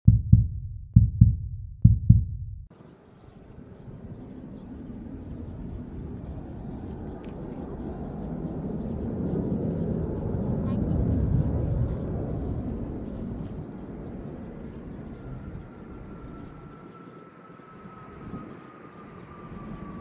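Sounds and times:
low double thumps: 0.0s - 2.7s
jet engines rumbling: 2.7s - 20.0s.

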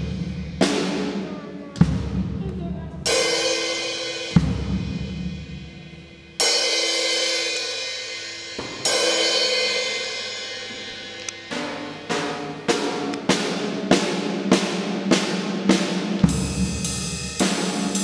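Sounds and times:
cymbal crashes ringing: 3.1s - 15.5s.

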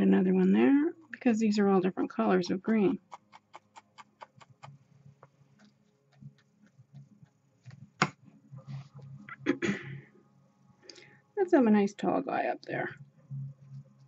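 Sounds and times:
paintbrush tapping: 2.7s - 8.2s.

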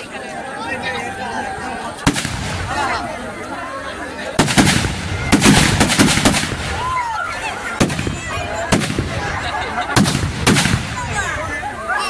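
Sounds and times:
fireworks bangs: 2.0s - 3.0s, 4.4s - 11.5s
fireworks crackling: 2.0s - 3.3s, 4.3s - 11.6s.

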